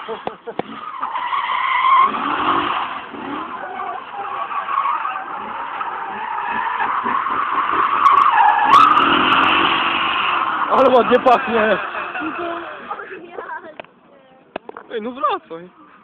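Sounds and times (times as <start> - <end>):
tyres skidding and squealing: 0.0 - 13.8
car engine revving high: 1.8 - 12.9.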